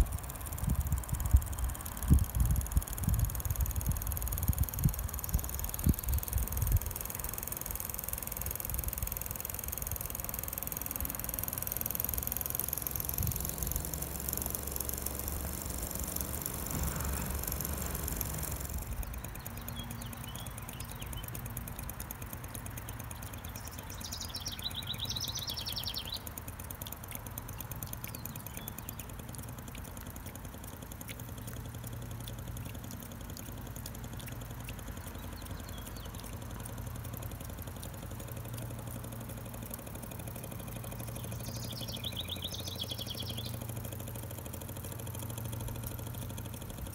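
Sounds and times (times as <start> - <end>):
toy steam engine ticking: 0.0 - 46.9
chirping trills: 23.1 - 26.4, 41.0 - 43.6.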